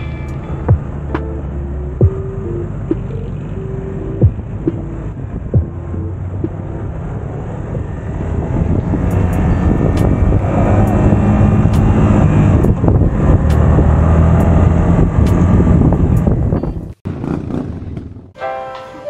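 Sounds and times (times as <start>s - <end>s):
motorcycle engine running: 1.8s - 3.1s, 3.7s - 4.7s, 5.4s - 6.6s, 8.7s - 18.3s
wind rushing over microphone: 4.2s - 18.3s.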